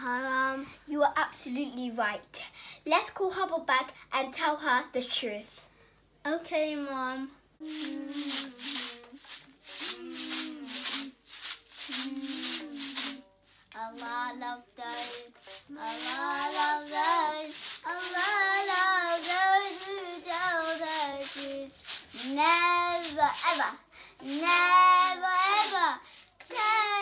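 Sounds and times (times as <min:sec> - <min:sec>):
child singing: 0:07.6 - 0:09.2, 0:09.8 - 0:11.1, 0:11.8 - 0:13.2, 0:13.8 - 0:27.0
rice shaker rattling: 0:07.6 - 0:27.0.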